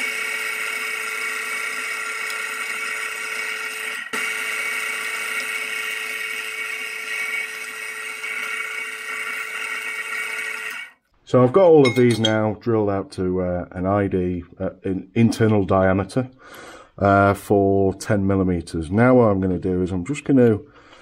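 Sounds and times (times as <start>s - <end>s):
drill press whining: 0.0s - 11.0s.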